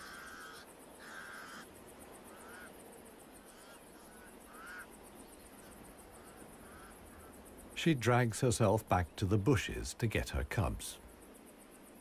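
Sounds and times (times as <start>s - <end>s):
crows cawing harshly: 0.0s - 2.8s, 3.4s - 7.5s
soft wind hiss: 0.0s - 12.0s.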